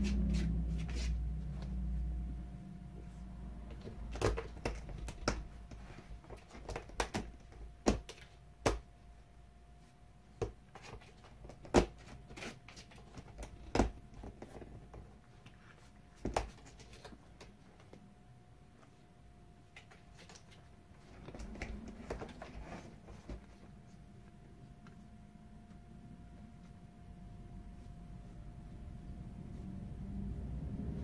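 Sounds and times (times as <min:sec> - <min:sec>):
cat scratching wooden door: 0:03.7 - 0:08.0.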